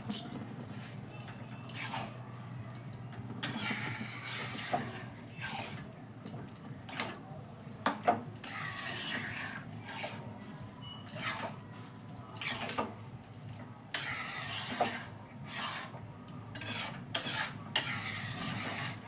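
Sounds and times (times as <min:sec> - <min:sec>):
metal spatula scraping a pot: 0:01.6 - 0:02.2, 0:03.4 - 0:05.9, 0:06.9 - 0:07.2, 0:08.4 - 0:10.3, 0:10.9 - 0:11.6, 0:12.4 - 0:12.9, 0:13.9 - 0:19.0.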